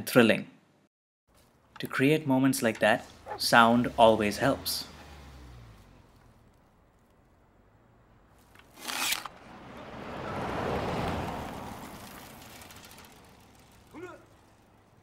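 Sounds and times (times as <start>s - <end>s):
car passing: 2.8s - 15.0s
herb cutter blade crunching: 8.5s - 9.4s.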